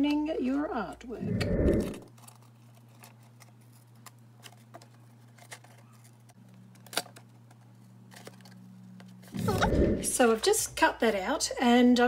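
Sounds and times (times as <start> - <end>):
steady low hum: 1.0 - 2.1, 8.7 - 10.9.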